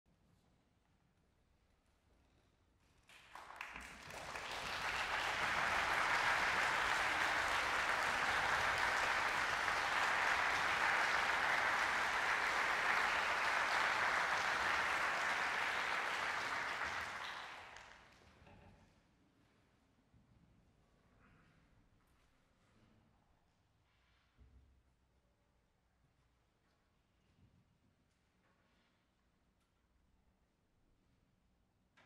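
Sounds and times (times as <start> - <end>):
audience applauding: 3.1 - 18.2.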